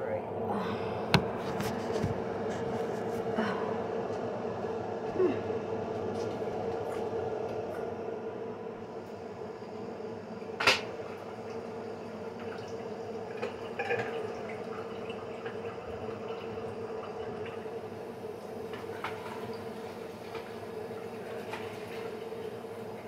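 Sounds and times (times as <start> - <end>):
steady hum: 0.0 - 23.0.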